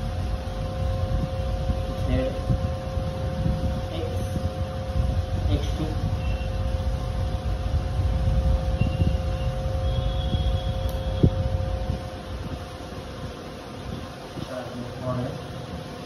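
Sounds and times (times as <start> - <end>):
low mechanical hum: 0.0 - 16.0
steady whine: 0.0 - 16.0.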